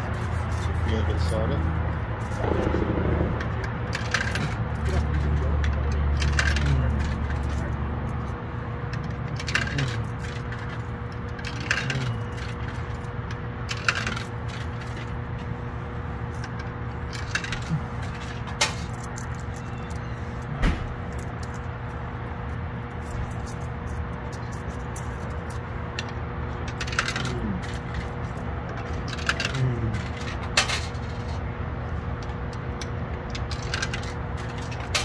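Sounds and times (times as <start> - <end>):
vending machine low hum: 0.0 - 35.0
coins clinking into coin slot: 3.9 - 8.3, 9.0 - 15.2, 16.4 - 20.1, 26.7 - 31.4, 33.4 - 35.0.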